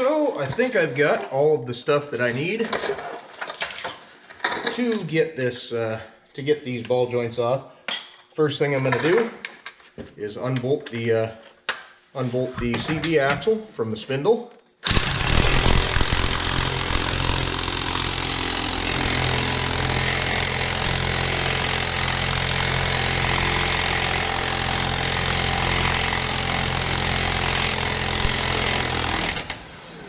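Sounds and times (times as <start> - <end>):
impact wrench hammering: 14.8 - 29.4.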